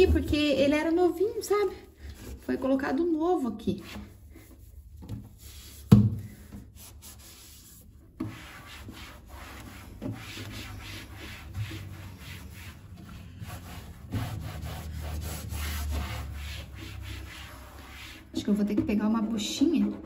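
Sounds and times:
hand scrubbing cabinet surface: 0.0 - 20.0.

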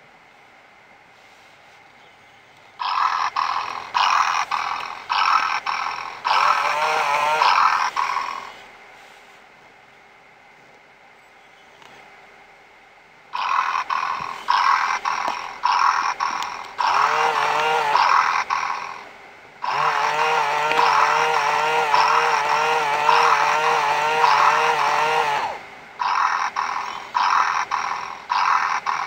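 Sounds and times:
low steady hum: 0.0 - 29.0
toy kitten purring: 2.8 - 8.6, 13.4 - 29.0
wavering pitched toy cat sounds: 19.6 - 29.0.

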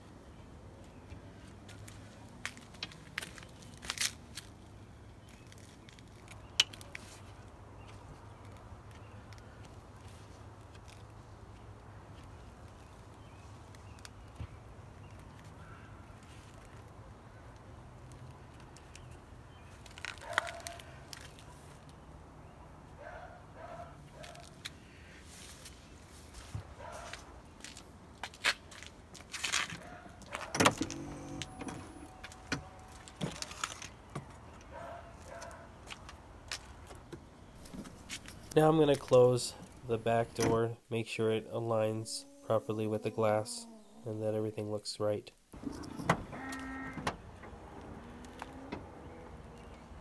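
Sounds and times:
short calls: 41.7 - 44.2.

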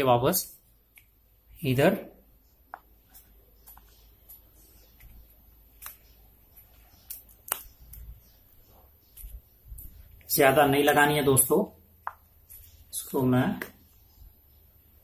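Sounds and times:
plastic tube crinkling and clicking: 6.9 - 8.2.

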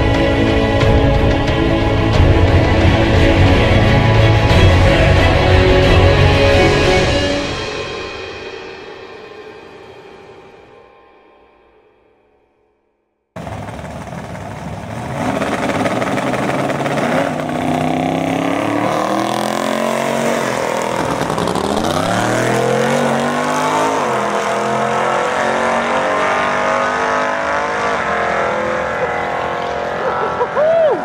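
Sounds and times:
drag car engine at full throttle: 13.4 - 31.0.

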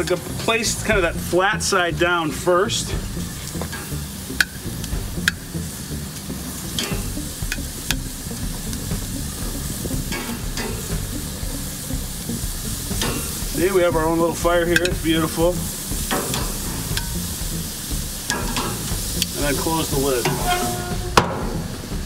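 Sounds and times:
broccoli sizzling on grill: 0.0 - 22.0
metal tongs clicking: 6.8 - 7.6.

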